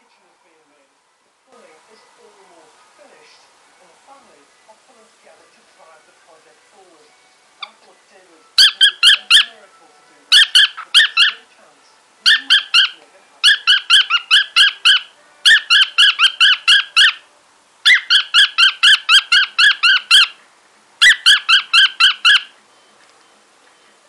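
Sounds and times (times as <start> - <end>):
cockatiel chirping: 7.6 - 7.8, 8.6 - 9.6, 10.3 - 11.5, 12.2 - 20.4, 21.0 - 22.6.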